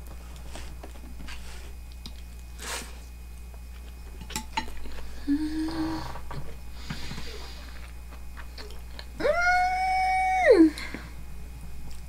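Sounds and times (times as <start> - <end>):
person humming mmm: 5.2 - 6.4, 9.2 - 11.0
person chewing food: 7.5 - 9.2.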